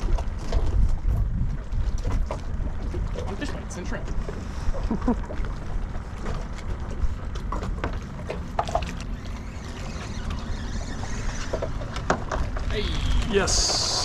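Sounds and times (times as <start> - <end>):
wind on the microphone: 0.0 - 6.1
water moving around a boat: 0.0 - 14.0.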